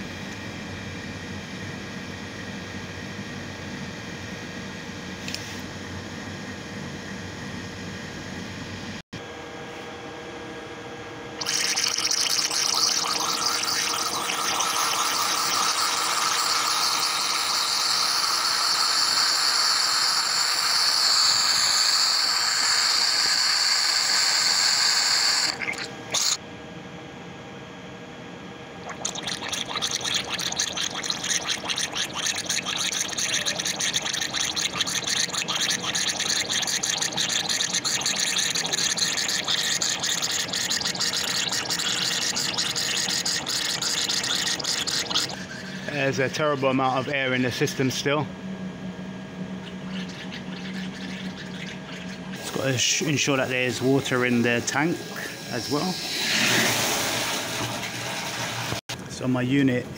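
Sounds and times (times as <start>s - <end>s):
air and water sputtering from vent: 11.4s - 26.4s, 28.8s - 48.1s, 49.6s - 58.9s
air hissing from vent valve: 13.2s - 26.4s, 52.4s - 57.3s.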